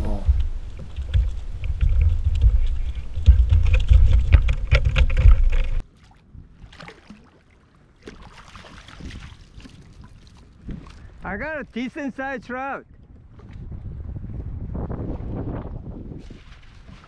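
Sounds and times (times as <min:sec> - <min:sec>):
loud low rumbling: 0:00.0 - 0:05.8
water splashing: 0:00.0 - 0:11.9, 0:16.2 - 0:17.0
knocks and clicks on kayak: 0:00.2 - 0:05.8.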